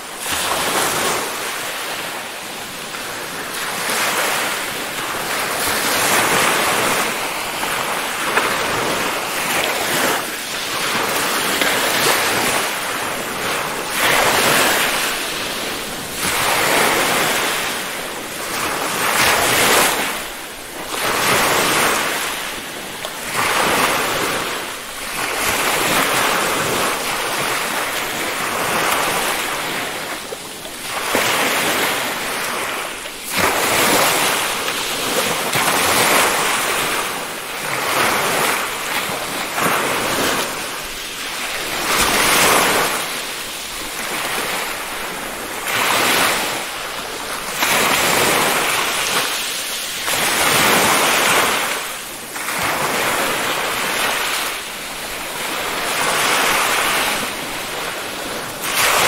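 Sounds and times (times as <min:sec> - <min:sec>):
waves breaking on shore: 0:00.0 - 0:59.0.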